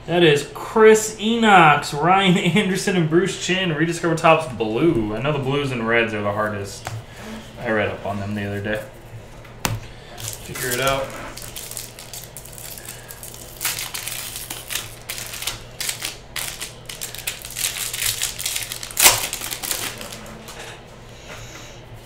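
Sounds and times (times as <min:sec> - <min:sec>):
foil wrapper crinkling: 0:10.1 - 0:20.4.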